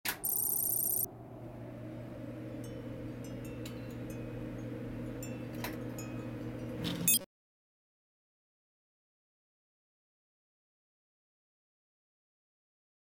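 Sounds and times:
held tones: 0.1s - 1.1s
low drone hum: 0.1s - 6.8s
faint chime-like glints: 0.2s - 1.1s.

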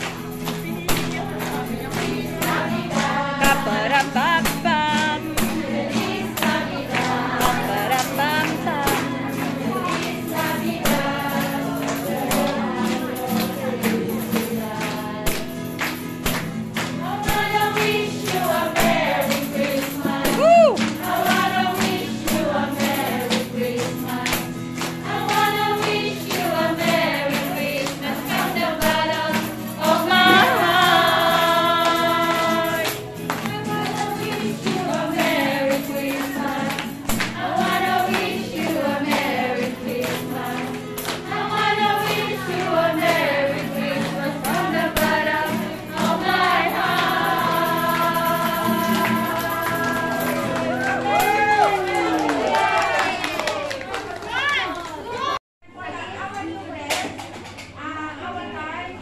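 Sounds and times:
women singing together: 0.0s - 51.6s
acoustic guitar: 0.0s - 53.5s
tambourine: 5.4s - 51.5s.

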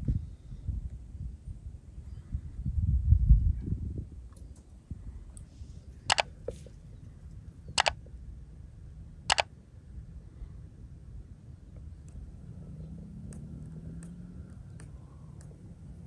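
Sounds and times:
faint low background: 7.7s - 8.0s, 9.3s - 9.5s.

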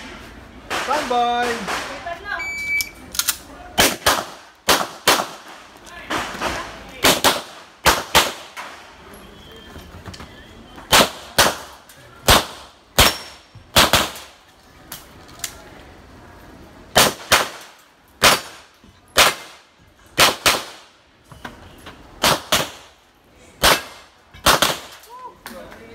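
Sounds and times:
gunshots: 0.7s - 2.1s, 3.8s - 8.8s, 10.9s - 14.3s, 16.9s - 18.6s, 19.2s - 19.6s, 20.2s - 20.9s, 22.2s - 22.9s, 23.6s - 25.0s.

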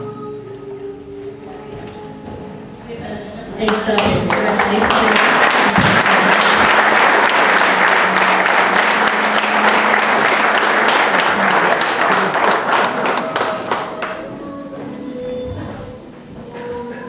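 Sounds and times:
audience applauding: 3.6s - 14.3s.

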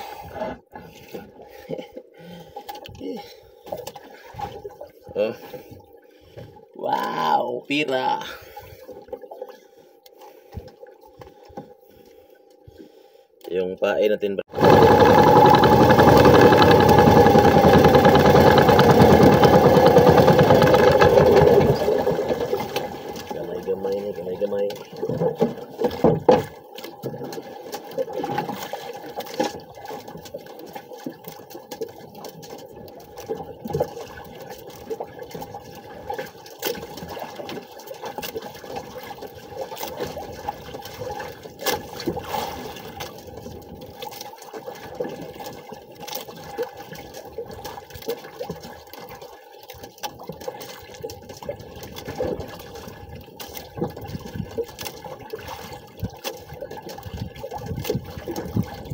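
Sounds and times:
water splashing against boat hull: 14.5s - 58.9s.

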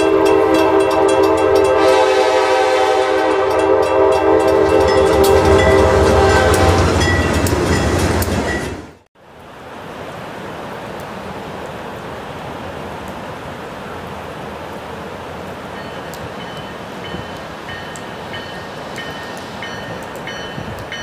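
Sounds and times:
locomotive air horn chord: 0.0s - 7.1s
crossing bell dinging: 0.0s - 8.9s, 15.8s - 21.0s
train wheel clatter and rumble: 3.6s - 9.0s, 15.8s - 21.0s
steady hiss: 9.8s - 21.0s.

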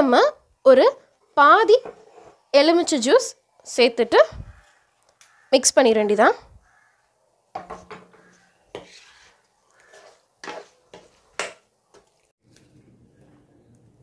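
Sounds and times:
spatula scraping a pan: 1.7s - 3.1s, 7.6s - 12.2s.

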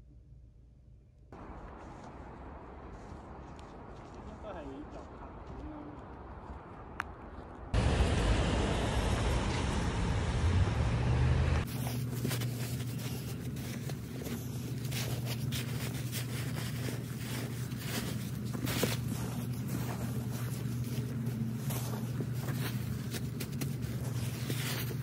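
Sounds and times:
rough low rumble: 1.4s - 25.0s
vehicle engine drone: 7.8s - 25.0s.

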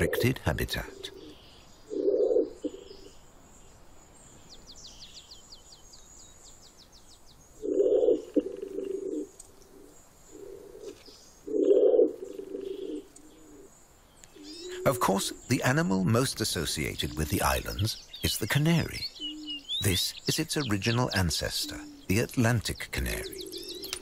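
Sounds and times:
pigeon cooing: 0.0s - 3.0s, 7.6s - 13.7s, 14.3s - 15.4s, 21.4s - 22.2s, 23.1s - 24.0s
small bird chirping: 0.0s - 24.0s.

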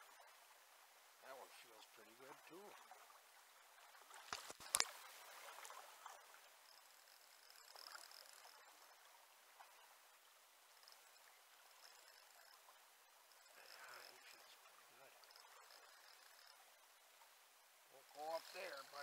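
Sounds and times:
sharp clicks: 4.3s - 5.0s.

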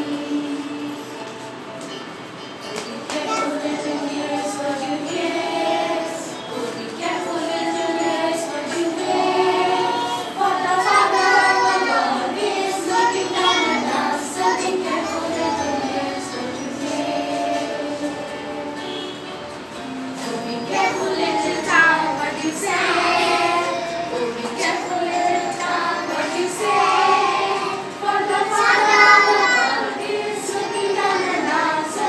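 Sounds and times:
children singing in chorus: 2.7s - 19.2s, 20.2s - 32.0s.

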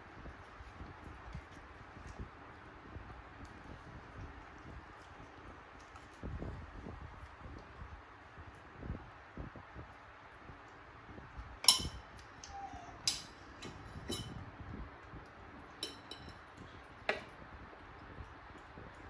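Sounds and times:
metal spoon clinking on hard surface: 11.6s - 14.4s, 15.8s - 16.5s.

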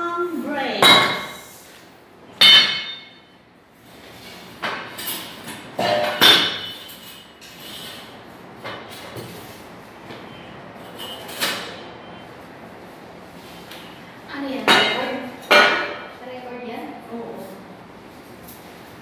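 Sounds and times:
knocks and clinks of furniture parts: 2.4s - 3.4s, 4.6s - 7.8s, 10.2s - 12.0s, 14.7s - 16.2s.

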